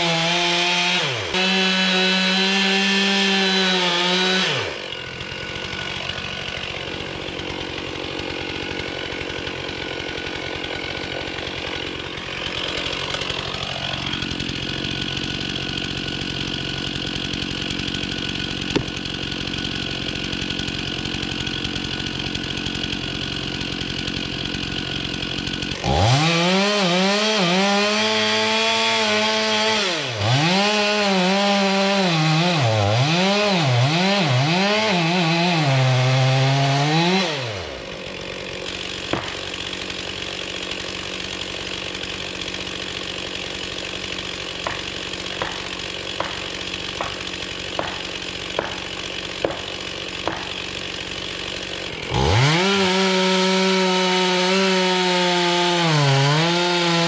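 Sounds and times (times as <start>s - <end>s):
chainsaw revving in wood: 0.0s - 57.0s.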